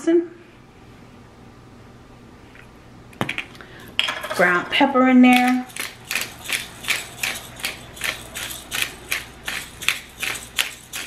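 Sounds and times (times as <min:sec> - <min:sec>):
pepper grinder crunching: 0:05.3 - 0:11.0.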